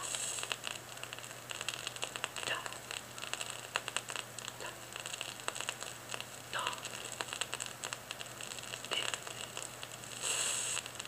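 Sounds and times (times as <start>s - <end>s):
vinyl crackle and pops: 0.0s - 11.0s
faint voice-like sound: 2.4s - 2.8s, 6.5s - 7.0s.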